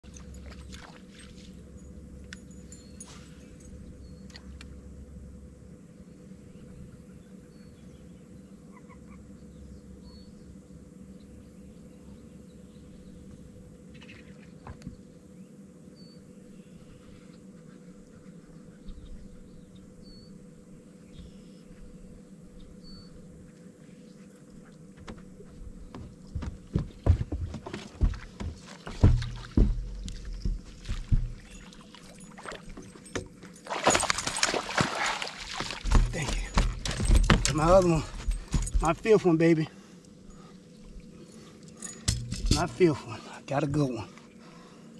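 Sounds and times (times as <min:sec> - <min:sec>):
faint steady hum: 0:00.0 - 0:44.9
sharp knocks and thumps: 0:25.9 - 0:39.1, 0:42.0 - 0:43.0
fish splashing: 0:33.6 - 0:36.9.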